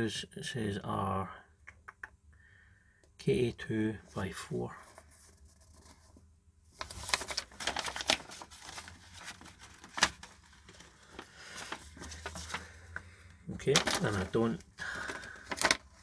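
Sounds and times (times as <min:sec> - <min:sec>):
crinkling and rustling of parts: 0:04.8 - 0:16.0.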